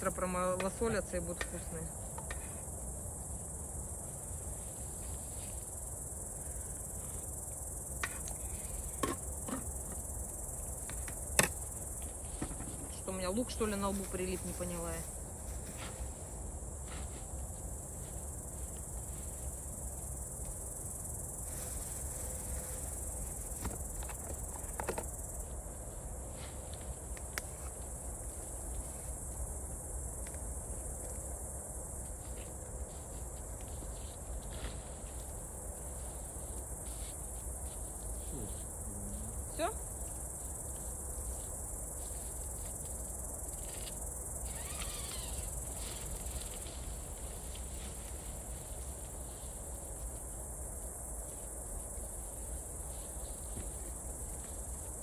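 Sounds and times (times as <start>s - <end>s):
crickets chirping: 0.0s - 55.0s
short rising squeak: 44.4s - 45.4s.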